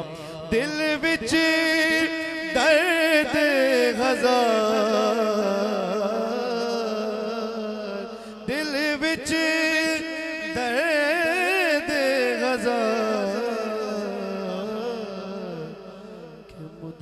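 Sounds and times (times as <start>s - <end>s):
man singing through a microphone: 0.0s - 17.0s.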